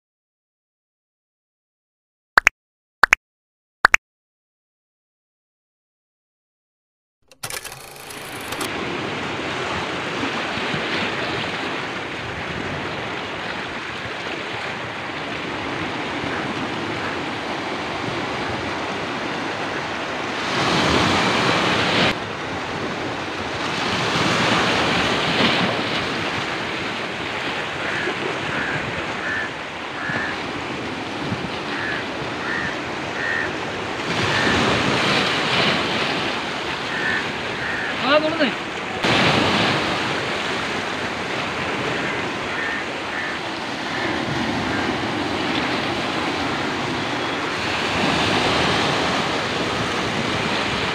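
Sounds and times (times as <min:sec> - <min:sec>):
waves breaking on rocks: 0:08.7 - 0:50.9
wind noise on microphone: 0:20.5 - 0:37.7.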